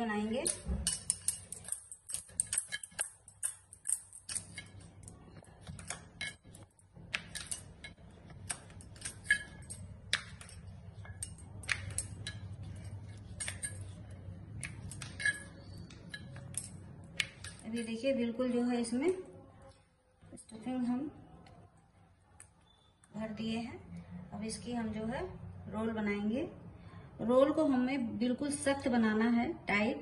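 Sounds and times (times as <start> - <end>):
rolling pin rolling dough: 0.0 - 18.0
bangles clinking: 0.0 - 19.8
low steady hum: 0.0 - 30.0.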